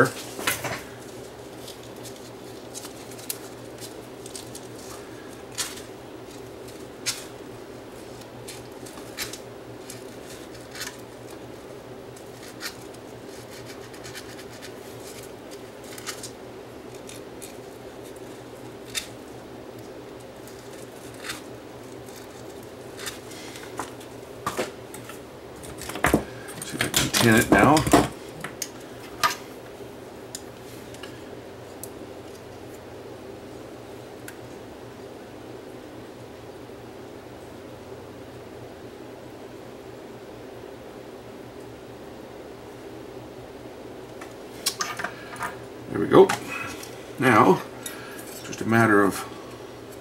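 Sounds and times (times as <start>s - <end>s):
sandpaper scratching wire: 12.2s - 16.2s.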